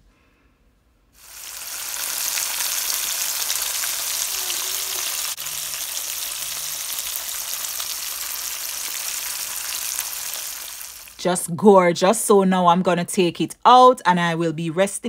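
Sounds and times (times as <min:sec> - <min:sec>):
fish sizzling in hot oil: 0:01.2 - 0:11.2.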